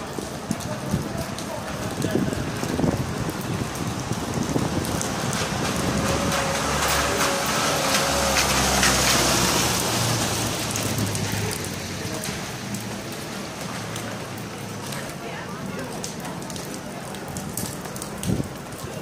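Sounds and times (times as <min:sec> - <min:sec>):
van driving past on wet cobbles: 0:00.0 - 0:15.2
rain on cobbled street: 0:00.0 - 0:19.0.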